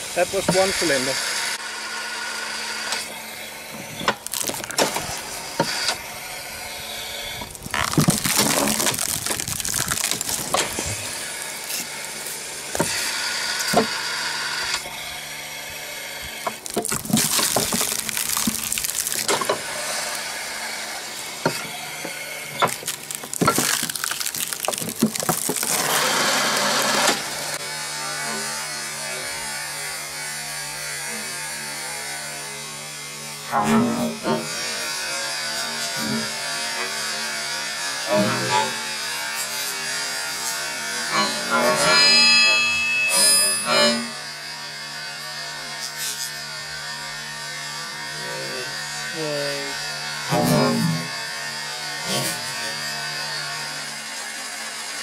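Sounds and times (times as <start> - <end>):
pressure washer motor humming: 0.0 - 30.8
wood creaking and cracking: 3.9 - 6.0, 7.3 - 14.0, 16.4 - 20.3, 21.4 - 27.6.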